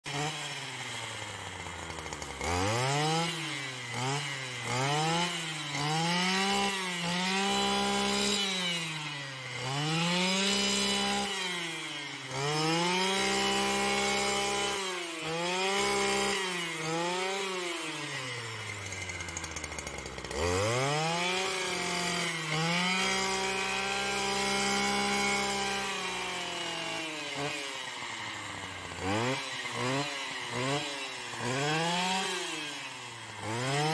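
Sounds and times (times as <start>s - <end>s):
brushcutter engine revving: 0.0s - 33.9s.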